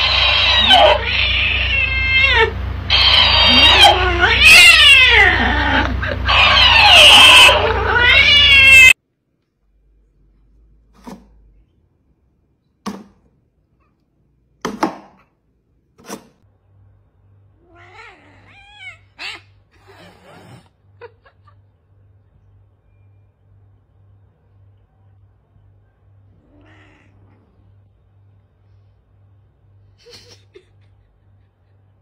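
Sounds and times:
cat yowling: 0:00.0 - 0:09.0, 0:17.6 - 0:20.6, 0:26.3 - 0:27.6
faint cat meows: 0:26.3 - 0:27.6.

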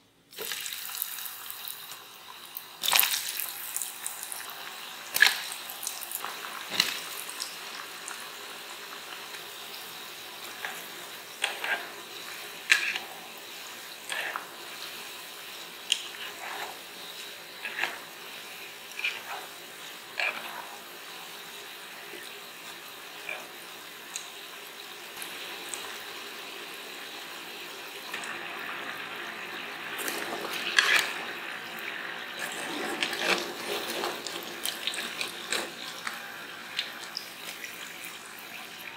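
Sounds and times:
potatoes sizzling in hot oil: 0:00.3 - 0:38.9
utensils stirring potatoes: 0:02.8 - 0:24.3, 0:28.1 - 0:38.9.

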